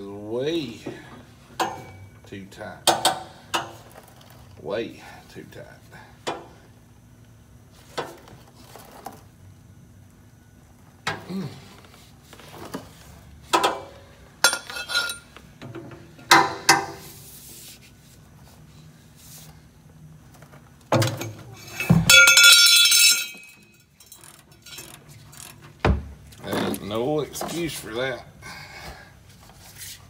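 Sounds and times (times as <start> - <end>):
wrench clanking on metal: 13.5 - 15.3, 21.0 - 25.7
ringing metallic clatter: 21.6 - 25.0.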